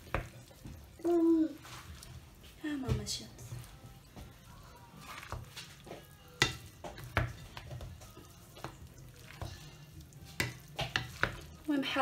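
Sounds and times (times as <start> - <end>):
food churning in a bowl: 0.0 - 12.0.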